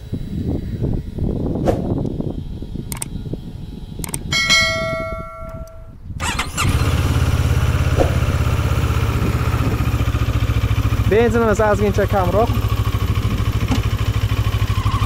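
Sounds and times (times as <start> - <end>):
motorcycle engine idling: 0.0 - 15.0
starter motor whine: 0.0 - 15.0
clicks: 2.9 - 3.1, 4.0 - 6.4.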